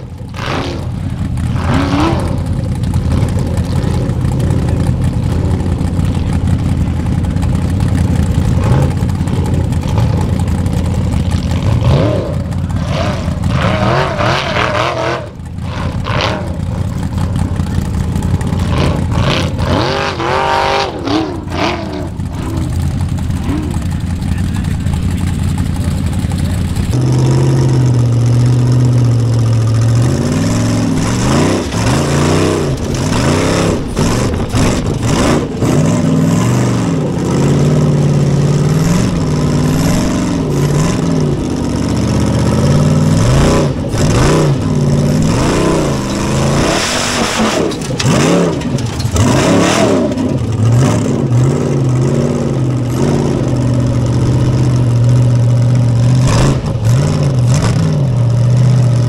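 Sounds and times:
buggy engine revving: 0.0s - 59.0s
chassis knocks and rattles: 28.4s - 36.1s, 38.4s - 50.8s.

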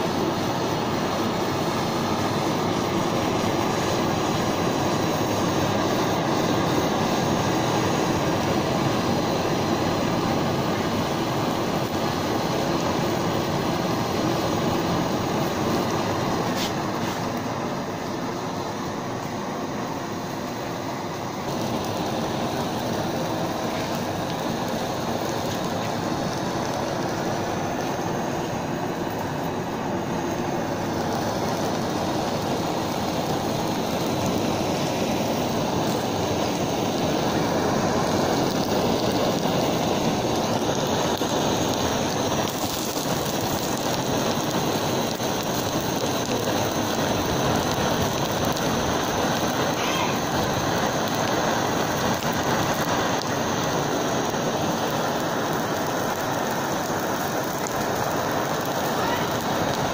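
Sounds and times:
gas torch flame hissing: 0.0s - 59.9s
plastic bottle burning and crackling: 0.0s - 59.9s.

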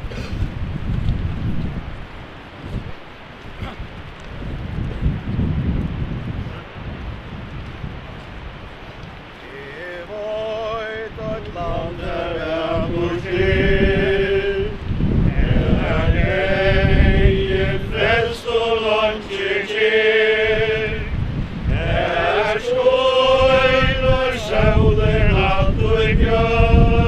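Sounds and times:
wind buffeting microphone: 0.0s - 27.0s
voices singing a slow hymn: 9.4s - 27.0s.

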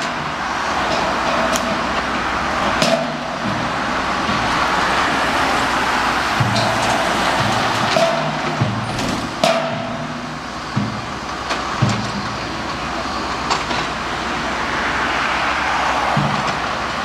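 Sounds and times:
sledgehammer striking steel beam: 0.0s - 11.2s
rumble of site machinery: 0.0s - 17.0s.

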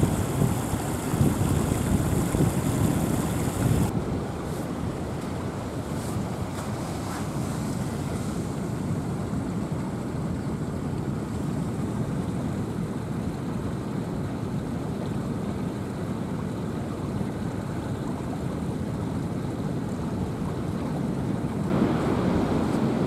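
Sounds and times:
surf rushing: 0.0s - 9.7s, 21.7s - 23.0s
wind buffeting microphone: 0.0s - 10.8s, 21.7s - 23.0s.

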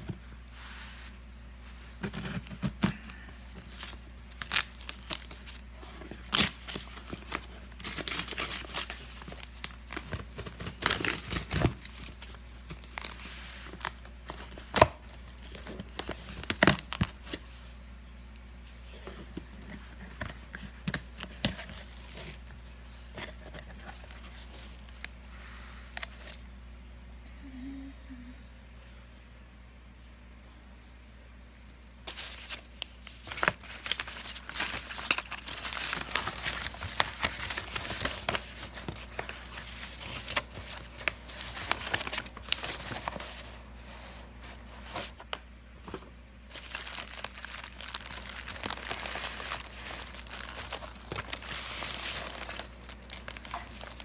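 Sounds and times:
packing tape ripping: 6.2s - 9.0s.

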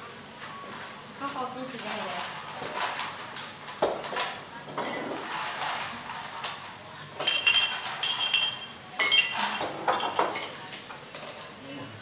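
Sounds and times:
tableware clinking: 3.8s - 6.6s, 7.2s - 11.5s.

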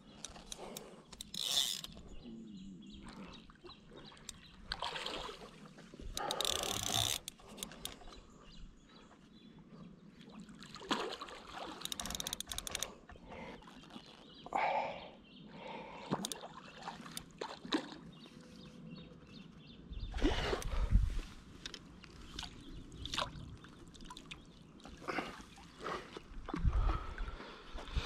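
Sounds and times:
fishing rod handling noises: 0.0s - 2.2s, 6.0s - 8.2s, 11.6s - 13.0s, 13.6s - 14.4s, 16.1s - 17.5s, 20.3s - 23.4s
fishing reel rapid clicking: 6.2s - 7.9s, 11.9s - 12.9s.

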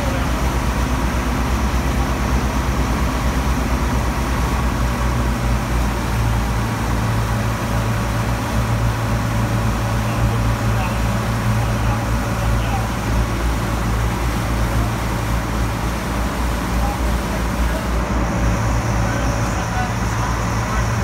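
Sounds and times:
powerboat engine droning: 0.0s - 21.0s
rushing wake water: 0.0s - 21.0s.

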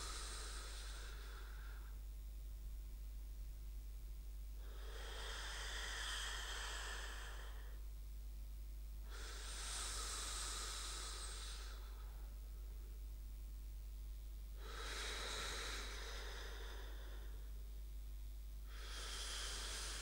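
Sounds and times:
slow sleep breathing: 0.0s - 2.1s, 4.6s - 7.8s, 9.0s - 12.9s, 14.6s - 17.8s, 18.6s - 20.0s.

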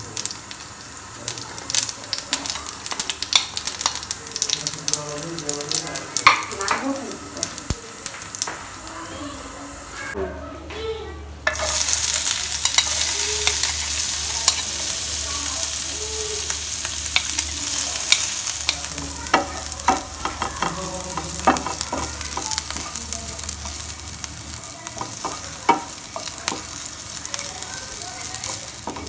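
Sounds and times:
onions sizzling in hot oil: 0.0s - 10.2s, 11.4s - 29.0s
oil popping: 11.5s - 29.0s
spatula scraping and tapping pan: 17.1s - 23.0s, 24.9s - 26.9s, 28.4s - 29.0s.

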